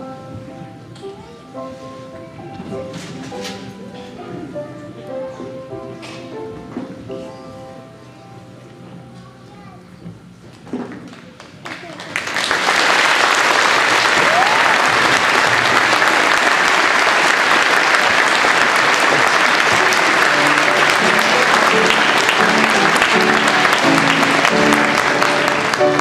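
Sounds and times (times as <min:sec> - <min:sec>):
audience applauding: 0:11.1 - 0:26.0
instrumental music: 0:19.4 - 0:26.0.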